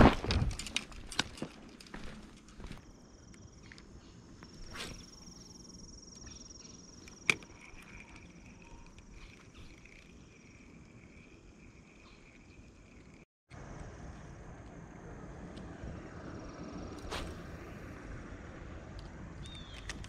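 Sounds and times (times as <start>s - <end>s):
reel whirring: 4.5s - 13.3s
fishing rod cast swish: 4.6s - 5.2s, 17.0s - 17.6s
reel click: 7.0s - 11.0s.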